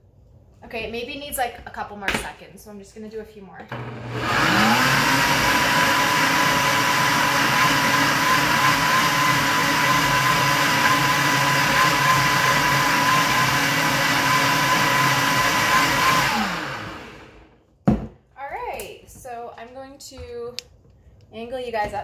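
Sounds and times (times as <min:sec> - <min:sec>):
blender motor whine: 0:03.7 - 0:17.6.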